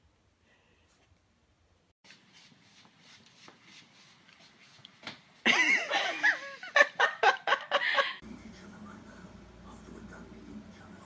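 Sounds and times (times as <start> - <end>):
person laughing loudly: 5.5 - 8.2.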